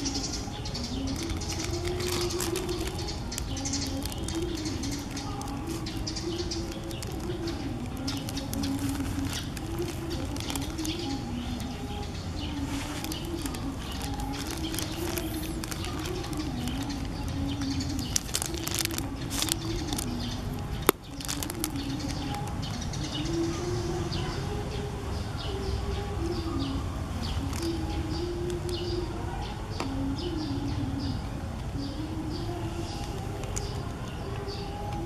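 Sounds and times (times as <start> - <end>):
pigeons cooing: 0.0 - 35.0.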